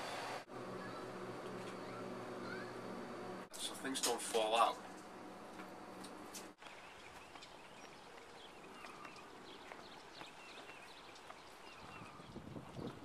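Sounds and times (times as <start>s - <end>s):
small birds chirping: 0.1s - 2.9s, 6.4s - 13.0s
wind rumbling on microphone: 6.9s - 13.0s.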